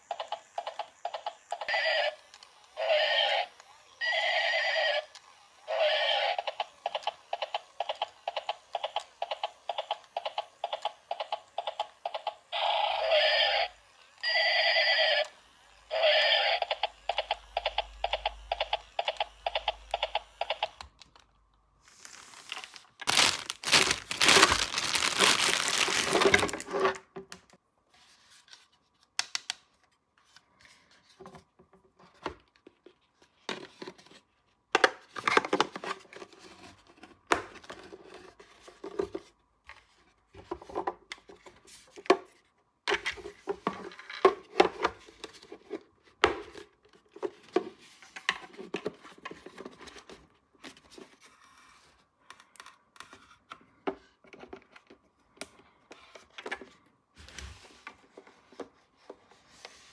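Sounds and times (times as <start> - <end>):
packaging crinkling and tearing: 21.8 - 26.9.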